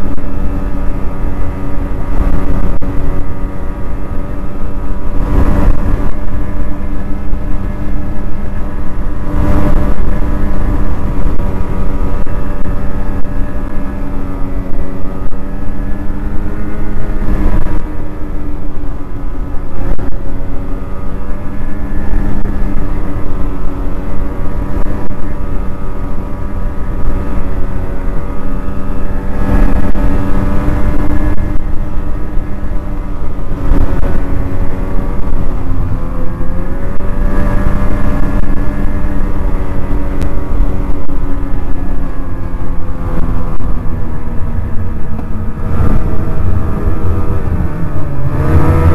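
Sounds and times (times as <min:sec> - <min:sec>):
snowmobile engine running: 0:00.0 - 0:48.9.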